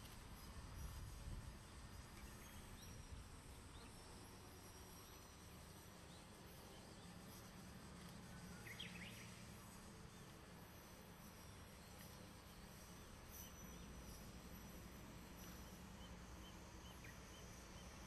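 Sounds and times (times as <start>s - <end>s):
bird chirp: 8.4s - 9.4s, 15.6s - 18.0s.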